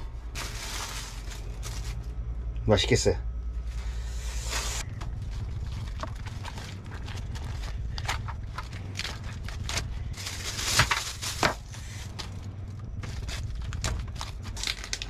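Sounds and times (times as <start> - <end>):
plastic bag crinkling: 0.0 - 2.2, 4.4 - 15.0
steady low hum: 0.0 - 15.0.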